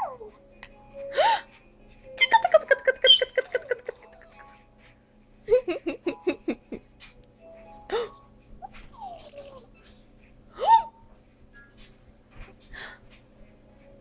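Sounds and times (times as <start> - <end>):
baby babbling: 8.6 - 9.7.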